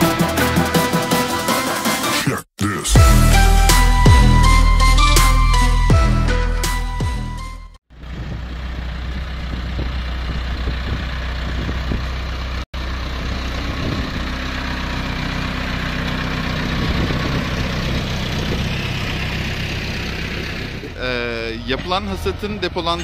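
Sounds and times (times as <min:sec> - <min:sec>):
tractor diesel engine running: 0:00.0 - 0:02.1, 0:03.0 - 0:23.0.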